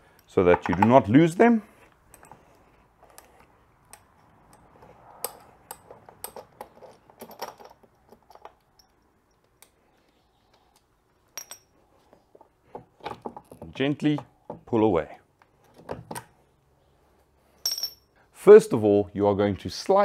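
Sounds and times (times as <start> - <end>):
small metal hardware clinking: 2.1 - 9.7, 10.7 - 11.8, 17.6 - 18.2.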